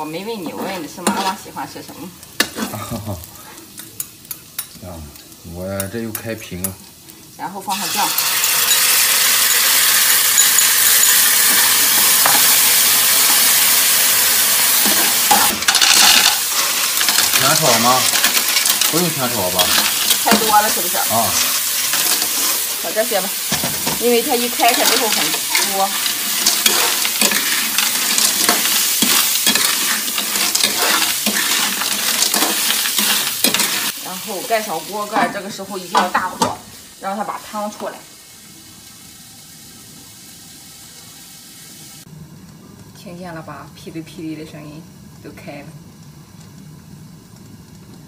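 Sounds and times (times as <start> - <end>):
oil sizzling in a wok: 0.0 - 48.0
metal spatula scraping pan: 0.3 - 2.8, 14.8 - 34.0
shells clattering into wok: 8.1 - 22.8, 23.4 - 34.0.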